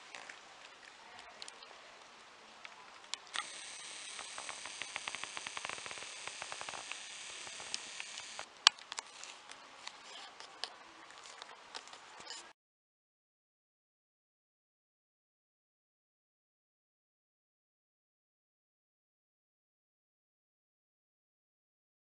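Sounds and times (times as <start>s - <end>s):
camcorder zoom motor whirring: 3.3s - 8.5s.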